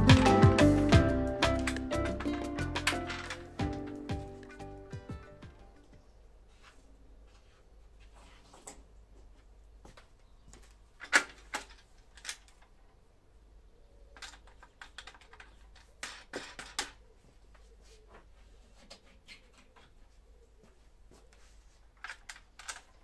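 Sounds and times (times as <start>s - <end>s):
saw fence clicks and knocks: 0.2s - 4.8s, 14.2s - 17.0s.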